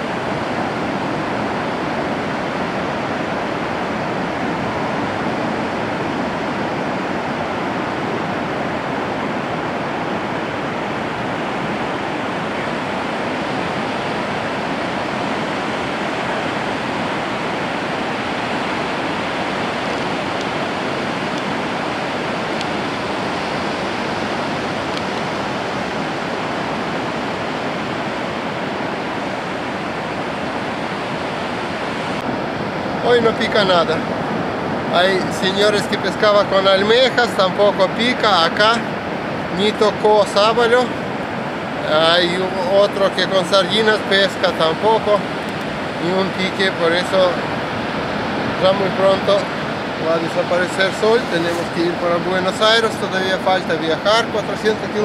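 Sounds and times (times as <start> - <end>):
ocean waves roaring: 0.0 - 55.0.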